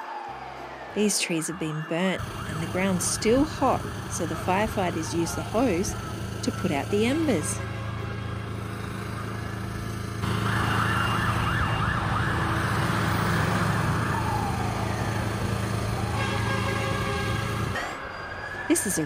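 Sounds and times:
fire truck siren: 0:00.0 - 0:19.0
vehicle engine hum: 0:02.2 - 0:19.0.

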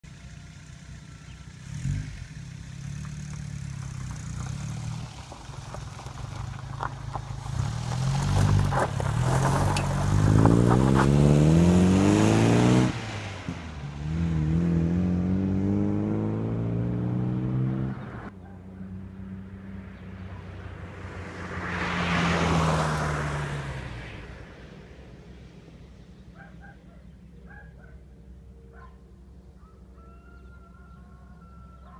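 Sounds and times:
sports car engine revving: 0:01.2 - 0:04.6, 0:07.5 - 0:18.4.

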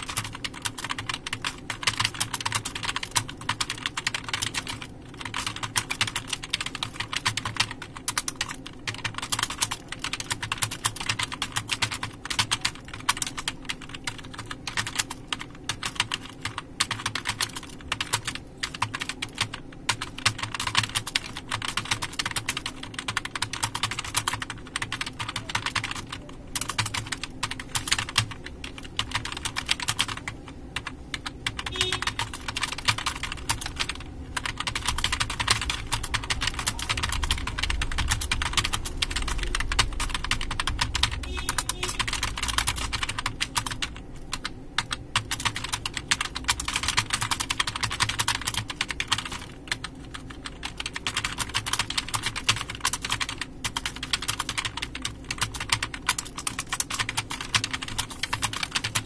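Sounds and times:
fast keyboard typing: 0:00.0 - 0:59.0.

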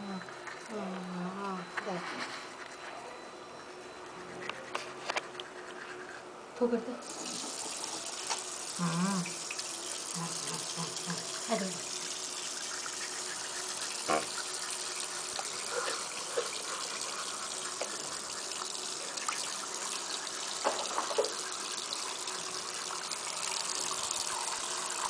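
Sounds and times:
water running from a tap: 0:07.0 - 0:25.0.

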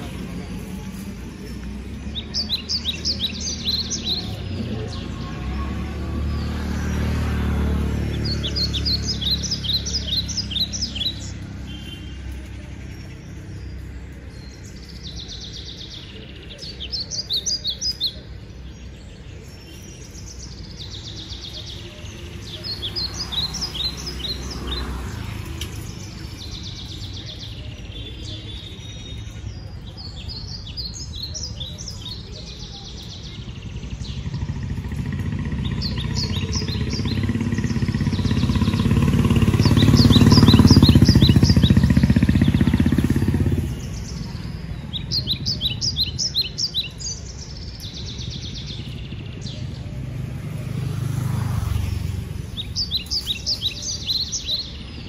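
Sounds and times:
songbird chirping: 0:00.0 - 0:55.0.

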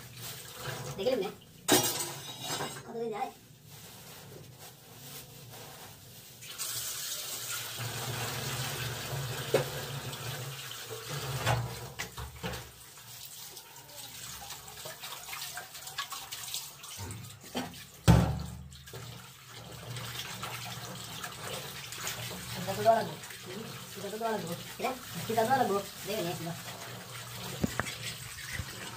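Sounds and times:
tap water running into sink: 0:00.0 - 0:02.2, 0:06.4 - 0:28.9
fish being rinsed by hand: 0:00.0 - 0:28.9
knocks in sink: 0:17.6 - 0:18.7.

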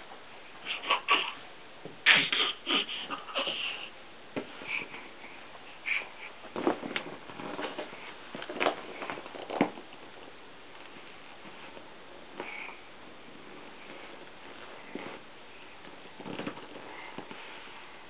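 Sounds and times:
baby grunting and babbling: 0:00.6 - 0:01.4, 0:02.0 - 0:03.9.

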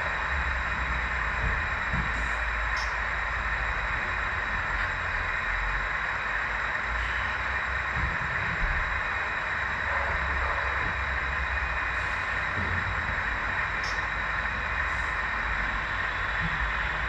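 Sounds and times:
model train rumbling: 0:00.0 - 0:17.0
faint high whine: 0:02.3 - 0:07.8.

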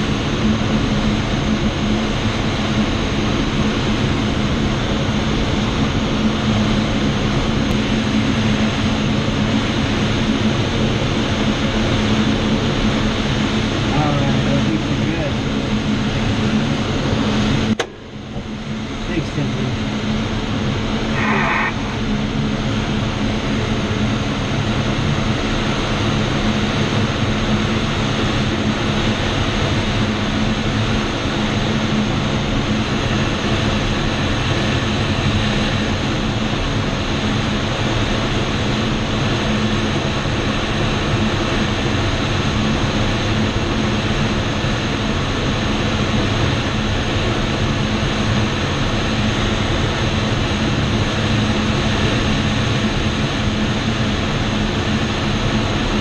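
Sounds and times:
rushing airflow in cockpit: 0:00.0 - 0:56.0
low hum: 0:06.0 - 0:25.3.

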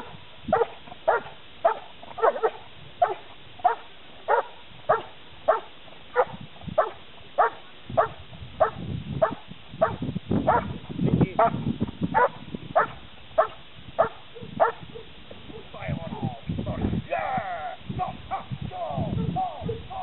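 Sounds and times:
dog barking sharply: 0:00.0 - 0:10.7.

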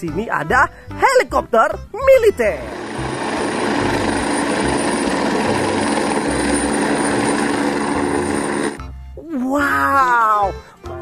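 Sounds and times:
helicopter rotor beat: 0:02.4 - 0:08.9
turbine high whine: 0:02.6 - 0:08.8.

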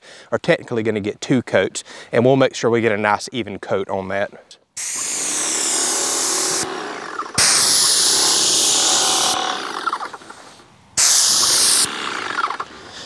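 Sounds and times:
airless paint sprayer hissing: 0:04.8 - 0:10.3, 0:11.0 - 0:12.2.

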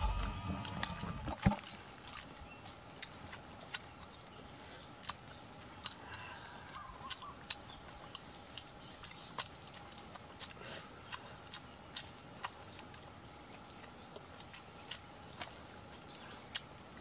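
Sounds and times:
chewing crunches: 0:00.0 - 0:04.2, 0:07.0 - 0:17.0
faint high-pitched hum: 0:00.0 - 0:09.2.

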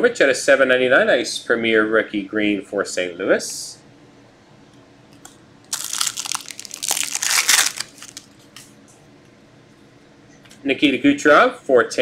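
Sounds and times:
foil wrapper crinkling: 0:05.7 - 0:08.4.

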